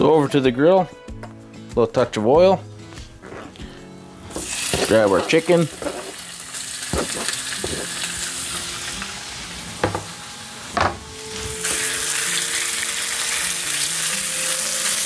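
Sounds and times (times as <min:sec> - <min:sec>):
meat sizzling on griddle: 0:04.3 - 0:15.0
spatula knocking on griddle: 0:06.9 - 0:07.9, 0:09.8 - 0:10.1.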